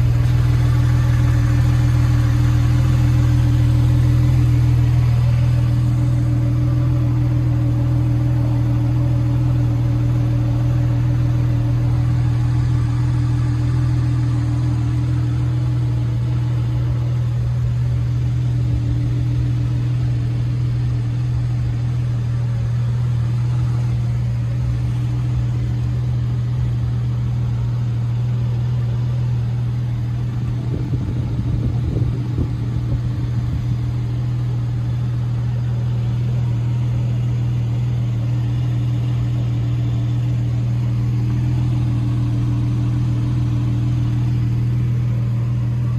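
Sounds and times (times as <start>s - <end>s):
car engine idling: 0.0s - 45.9s
handling noise rumble: 10.2s - 45.9s.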